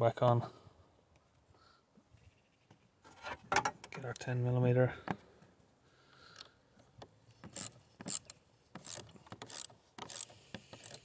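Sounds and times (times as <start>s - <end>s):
socket ratchet clicking: 7.5s - 11.0s.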